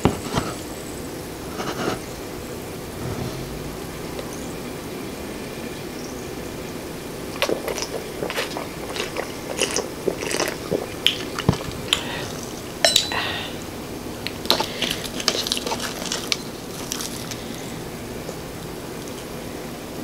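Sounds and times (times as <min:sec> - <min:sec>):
sipping and swallowing: 0:07.2 - 0:13.6, 0:14.3 - 0:17.6
wet lip smacks and clicks: 0:07.4 - 0:12.5.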